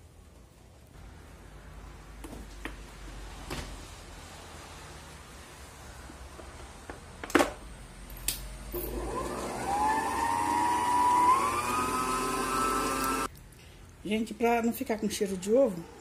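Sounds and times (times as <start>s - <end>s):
mixer motor whining: 8.8s - 13.3s.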